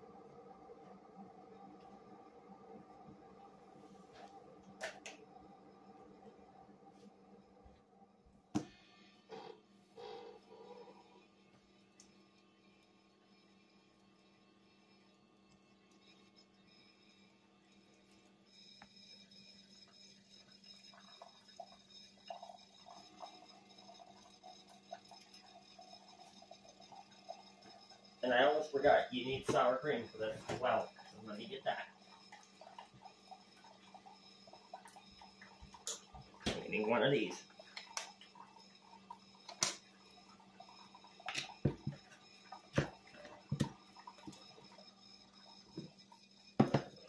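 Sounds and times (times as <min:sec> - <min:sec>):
faint steady hum: 0:00.0 - 0:47.0.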